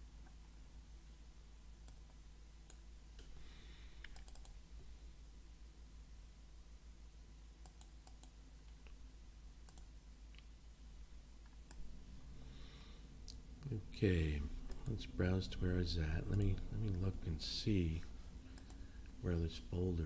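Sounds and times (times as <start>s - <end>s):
faint low hum: 0.0s - 20.0s
computer mouse clicking: 1.8s - 3.3s, 4.0s - 4.6s, 7.6s - 9.0s, 9.6s - 10.4s, 18.6s - 18.9s.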